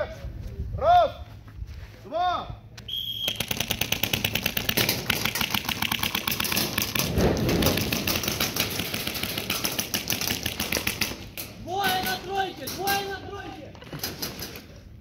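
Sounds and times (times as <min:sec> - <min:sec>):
airsoft rifle rapid fire: 0:03.2 - 0:11.3.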